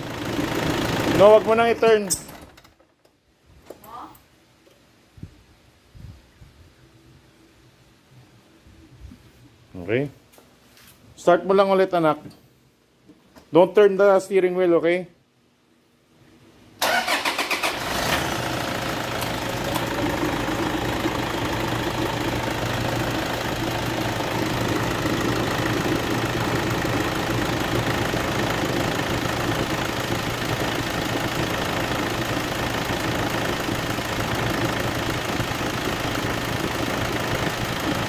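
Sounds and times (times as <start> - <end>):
diesel engine idling: 0.0 - 1.8, 17.1 - 38.0
diesel engine cranking: 16.8 - 38.0.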